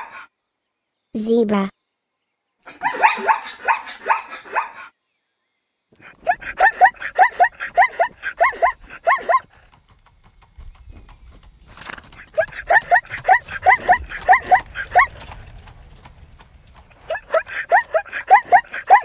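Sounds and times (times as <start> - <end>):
zebra barking calls: 2.7 - 4.9, 6.0 - 9.5, 12.1 - 15.3, 16.8 - 19.0.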